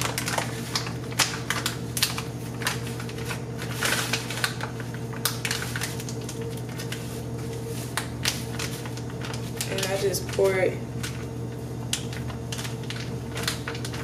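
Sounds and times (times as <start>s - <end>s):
packet being torn open: 0.0s - 7.0s, 7.9s - 9.9s, 11.9s - 14.0s
steady low hum: 0.0s - 14.0s.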